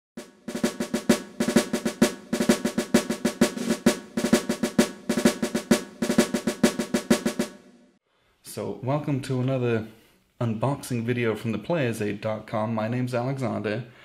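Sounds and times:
fast drum and percussion rhythm: 0:00.2 - 0:07.8.

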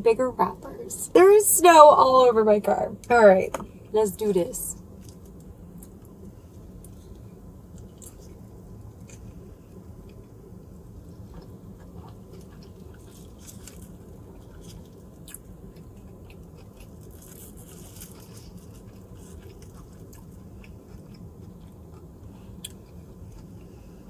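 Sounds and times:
steady low hum: 0:00.0 - 0:24.0
person chewing food: 0:11.0 - 0:24.0
foil wrapper rustling: 0:13.1 - 0:14.9, 0:17.0 - 0:19.8.

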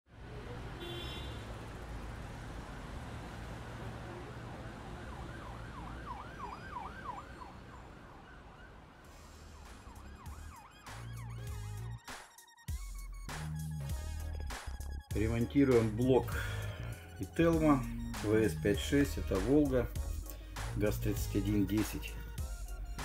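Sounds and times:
city traffic rumble: 0:00.1 - 0:12.0
emergency siren yelping: 0:03.9 - 0:12.0.

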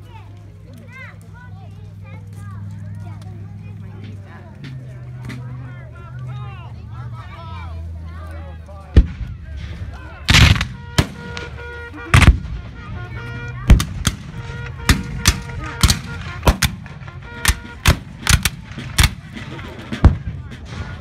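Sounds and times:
musket shots: 0:10.3 - 0:12.7, 0:13.7 - 0:21.0.

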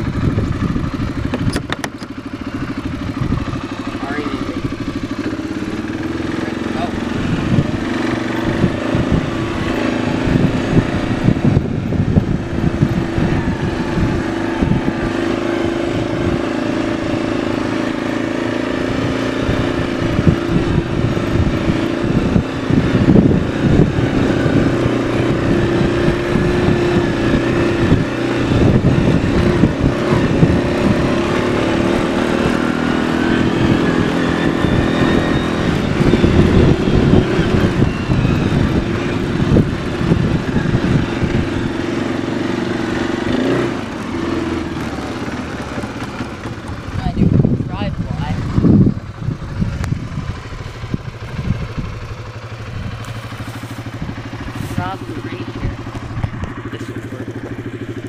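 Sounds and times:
atv engine running: 0:00.0 - 0:58.0
rumbling on microphone: 0:06.8 - 0:17.3, 0:52.7 - 0:58.0.

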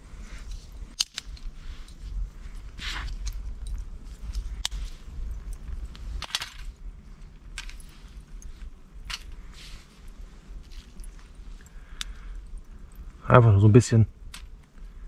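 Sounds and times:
twig fire burning: 0:00.0 - 0:15.0
twigs snapping and cracking: 0:00.5 - 0:01.6, 0:02.5 - 0:07.9, 0:10.6 - 0:13.2, 0:14.2 - 0:14.9.

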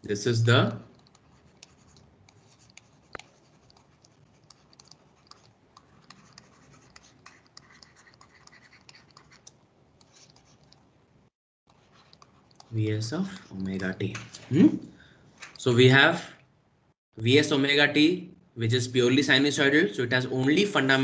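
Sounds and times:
stylus scratching on pen tablet: 0:01.0 - 0:10.8, 0:11.7 - 0:12.8.

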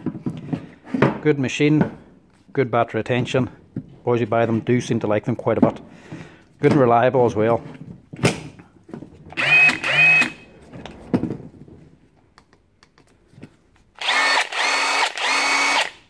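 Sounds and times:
impact wrench motor whine: 0:09.3 - 0:10.5, 0:14.0 - 0:16.0.

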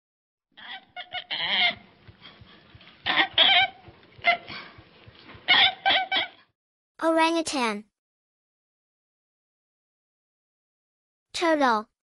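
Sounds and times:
orangutan calling: 0:00.6 - 0:06.5.

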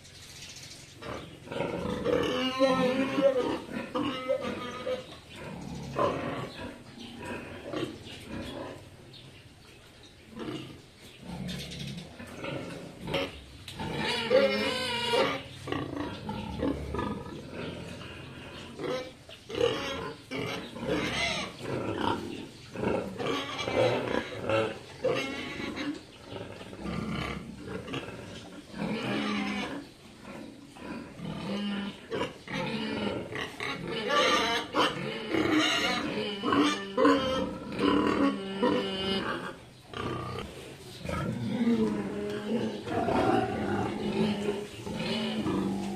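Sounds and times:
pig calling loudly: 0:01.0 - 0:06.6, 0:12.5 - 0:22.2, 0:31.2 - 0:40.5
pigs grunting: 0:01.0 - 0:09.1, 0:10.3 - 0:45.9.

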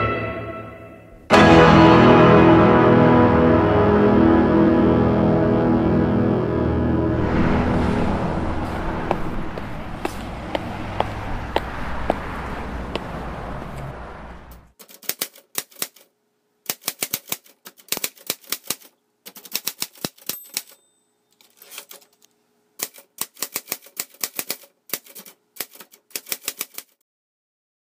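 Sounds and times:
typewriter keys clacking: 0:14.8 - 0:16.1, 0:16.7 - 0:20.8, 0:21.4 - 0:22.2, 0:22.8 - 0:27.0
typewriter bell ring: 0:20.1 - 0:21.8.

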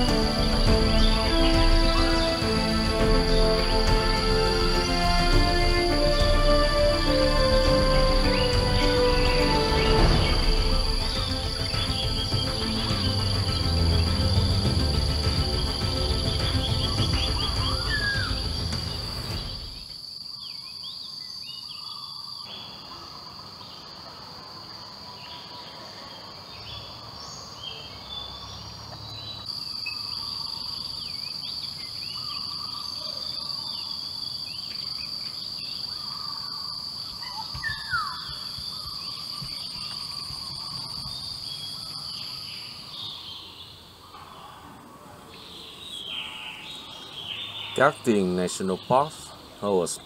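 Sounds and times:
background music: 0:00.0 - 0:19.8
insect drone: 0:00.0 - 0:50.0
bird chirps and calls: 0:16.3 - 0:19.8, 0:29.2 - 0:43.8.

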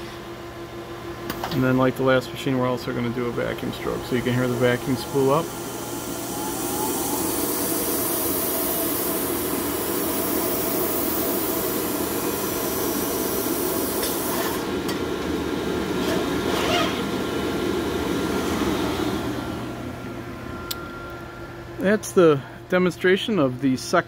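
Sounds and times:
vacuum rushing hiss: 0:01.7 - 0:20.0.

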